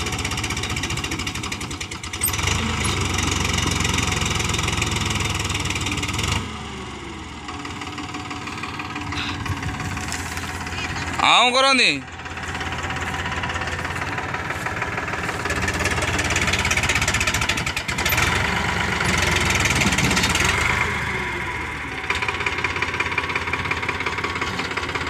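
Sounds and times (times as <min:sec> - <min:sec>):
tractor diesel engine under load: 0:00.0 - 0:25.0
tree trunk dragging: 0:09.0 - 0:11.2, 0:12.3 - 0:16.8.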